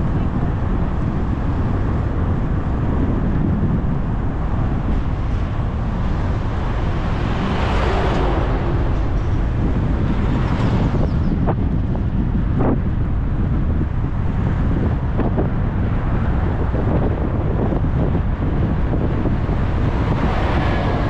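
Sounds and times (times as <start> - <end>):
wind buffeting microphone: 0.0 - 21.0
vehicle passing: 4.7 - 11.8, 17.5 - 21.0.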